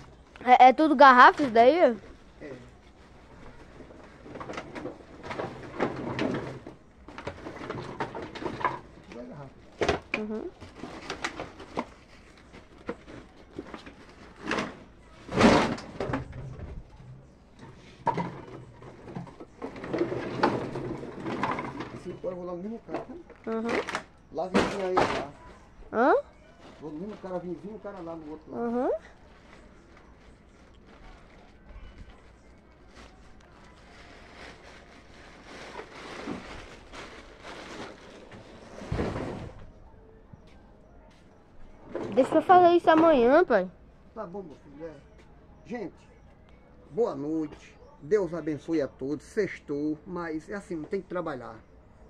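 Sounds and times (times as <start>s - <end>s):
plastic sacks rustling: 28.9s - 39.6s.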